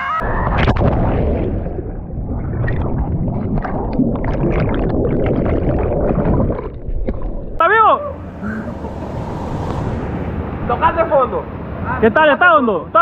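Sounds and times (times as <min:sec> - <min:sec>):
underwater churning water rumble: 0:00.2 - 0:07.6
air bubbles fizzing: 0:00.4 - 0:07.6.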